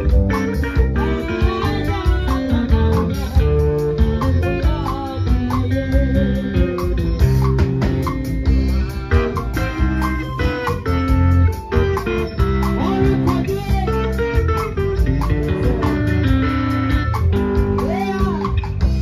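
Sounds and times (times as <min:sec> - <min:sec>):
live band playing gospel: 0:00.0 - 0:19.0
woman singing: 0:00.7 - 0:07.0, 0:12.8 - 0:14.7, 0:17.8 - 0:18.6.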